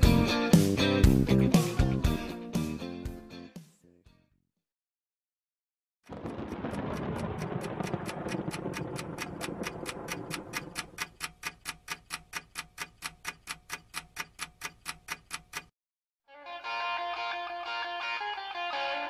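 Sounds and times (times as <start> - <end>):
clock-like ticking: 6.1 - 15.7.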